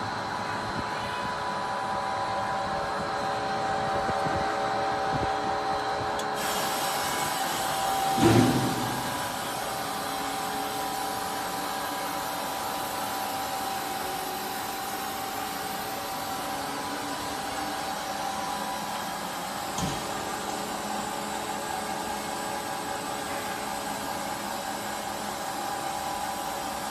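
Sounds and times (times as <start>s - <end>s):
constant whine: 0.0s - 26.9s
lathe whirring and humming: 0.0s - 26.9s
brief knock: 8.2s - 9.2s.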